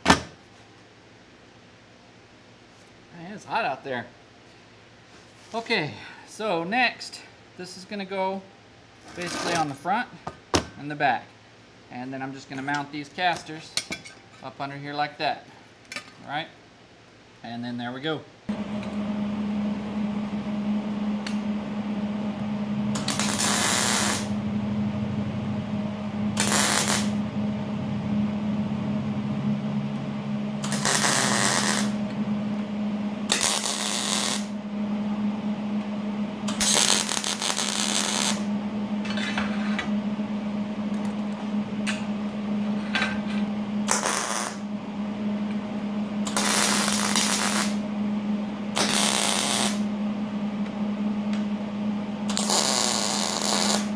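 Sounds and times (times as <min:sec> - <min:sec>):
low hum: 0:18.5 - 0:53.9
welding arc bursts: 0:22.9 - 0:24.3, 0:26.4 - 0:27.2, 0:30.6 - 0:32.0, 0:33.3 - 0:34.5, 0:36.5 - 0:38.5, 0:43.9 - 0:44.6, 0:46.3 - 0:47.8, 0:48.8 - 0:49.8, 0:52.3 - 0:53.9.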